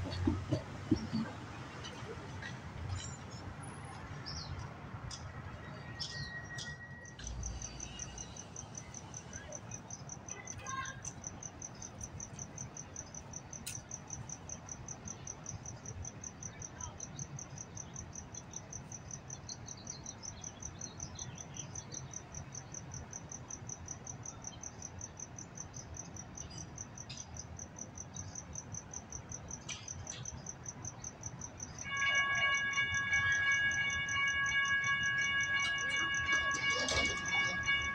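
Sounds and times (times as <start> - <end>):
railroad crossing warning bell: 0.0 - 24.3, 30.2 - 37.9
cricket chirping: 0.0 - 37.9.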